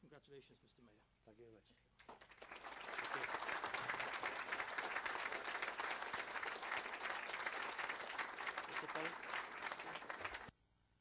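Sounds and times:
crowd applauding: 2.0 - 10.5.

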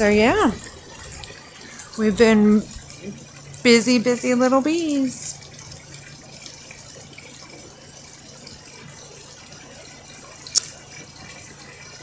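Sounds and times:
fountain jets splashing: 0.0 - 12.0
low steady hum: 0.0 - 12.0
small waterfall splashing: 0.0 - 12.0
sharp click: 10.5 - 10.8.

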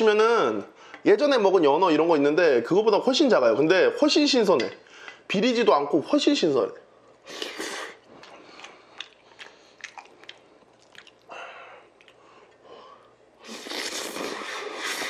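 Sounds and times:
person slurping noodles: 7.3 - 8.0, 13.4 - 15.0
person chewing noodles: 7.3 - 15.0.

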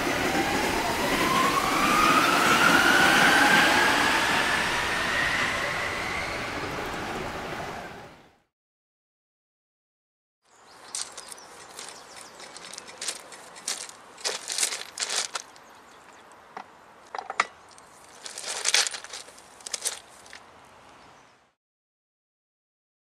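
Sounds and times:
metallic clanks and rattles: 16.6 - 20.0.

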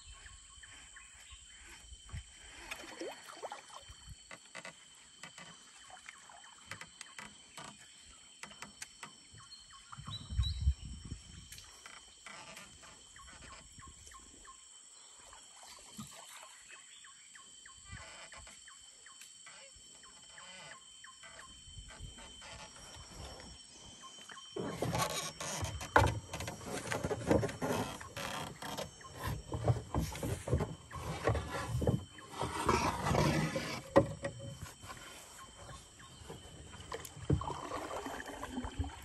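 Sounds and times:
insects droning: 0.0 - 39.0.

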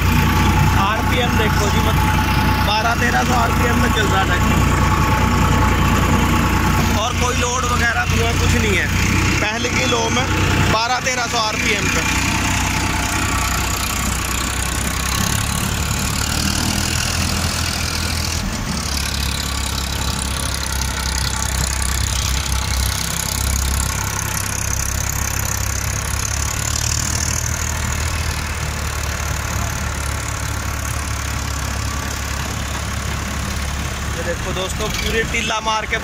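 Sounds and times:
tractor diesel engine running: 0.0 - 36.0.

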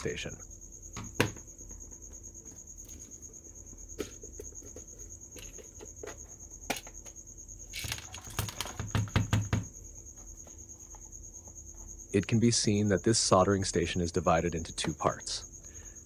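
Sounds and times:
plastic case knocks and rattles: 7.8 - 9.8.

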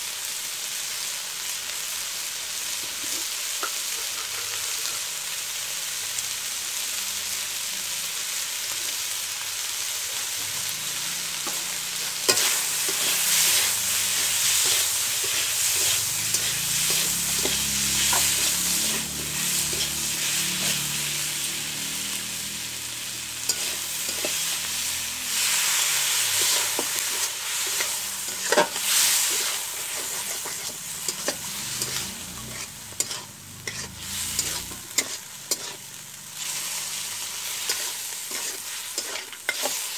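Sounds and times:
curry sizzling in a wok: 0.0 - 39.9
metal spatula scraping a wok: 2.7 - 5.4, 10.2 - 21.4, 22.0 - 39.9.

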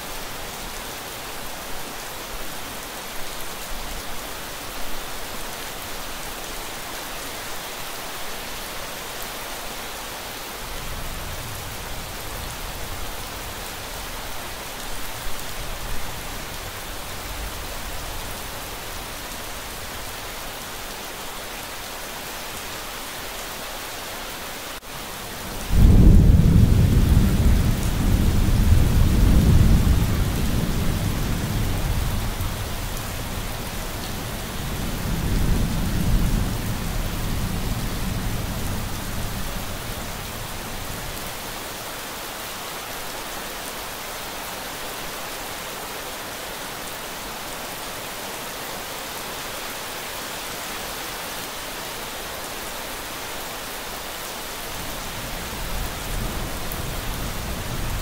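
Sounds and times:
steady rain: 0.0 - 58.0
distant thunder rumbles: 25.5 - 33.4
loud thunderclap: 25.7 - 31.6.

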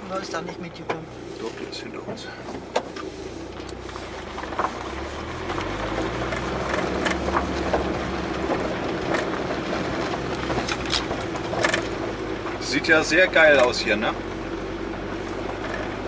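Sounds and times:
engine drone: 0.0 - 16.0
tyres on gravel: 0.0 - 16.0
stones clicking and rattling: 3.7 - 12.0.

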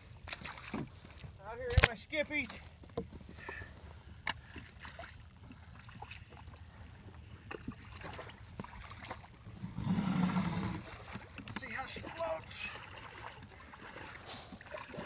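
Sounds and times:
water splashing: 0.2 - 2.7, 4.4 - 6.5, 7.3 - 15.0
sloshing steps in water: 7.5 - 9.4, 10.8 - 15.0.

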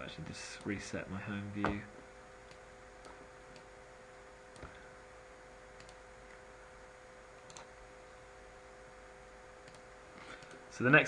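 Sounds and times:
faint hum: 0.0 - 11.0
computer mouse clicks: 2.4 - 3.7, 4.5 - 4.8, 5.8 - 6.4, 7.4 - 7.7, 9.6 - 10.6.

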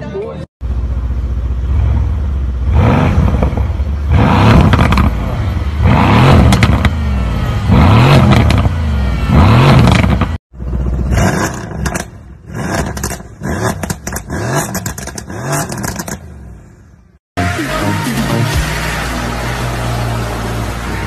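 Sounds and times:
car engine revving: 1.5 - 16.6, 17.4 - 21.0
exhaust crackles and pops: 4.5 - 5.2, 6.3 - 7.0, 9.7 - 16.4.

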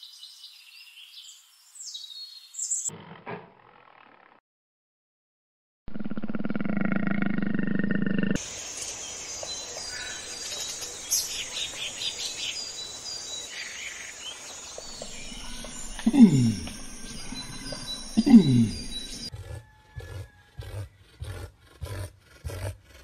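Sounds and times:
birds chirping: 8.4 - 19.3
deep falling animal calls: 14.8 - 19.3
tiger growling: 14.8 - 23.0.

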